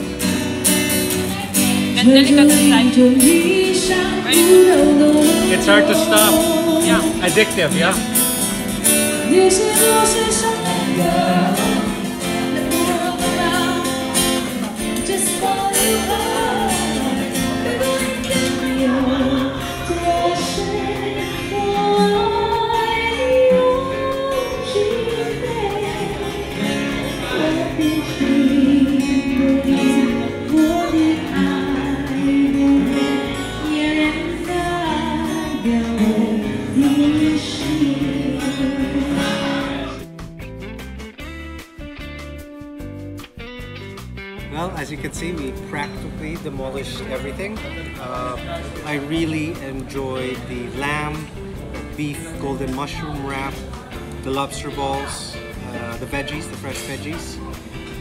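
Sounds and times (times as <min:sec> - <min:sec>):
person singing over guitar: 0:00.0 - 0:40.1.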